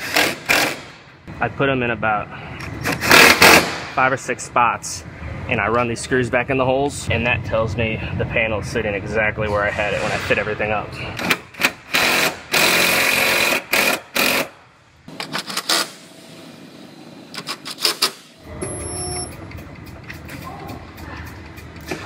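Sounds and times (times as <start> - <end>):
impact driver hammering screws: 0.0 - 0.9, 11.2 - 14.5
steady low hum: 1.0 - 12.5.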